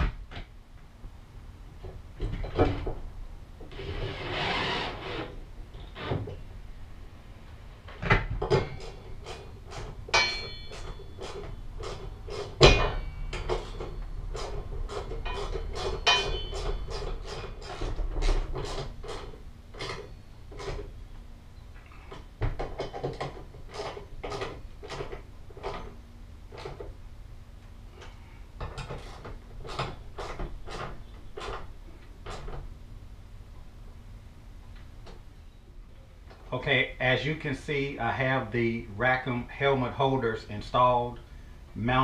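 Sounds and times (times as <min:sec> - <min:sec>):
knocks and metallic clinks: 0:08.0 - 0:20.9.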